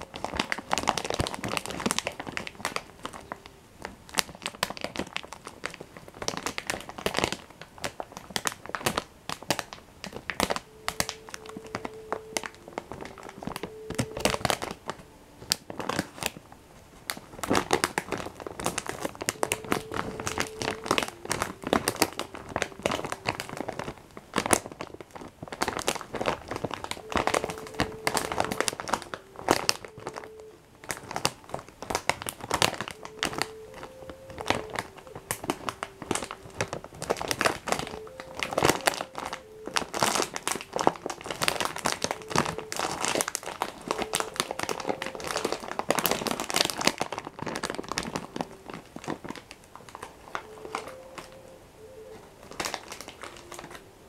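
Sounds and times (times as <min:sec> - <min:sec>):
plastic packet crinkling: 0:00.0 - 0:54.0.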